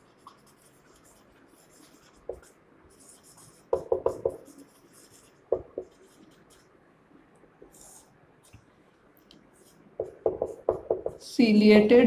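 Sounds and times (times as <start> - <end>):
marker squeaking on whiteboard: 0.0 - 6.6, 9.5 - 11.2
short knocks and taps: 10.0 - 11.2.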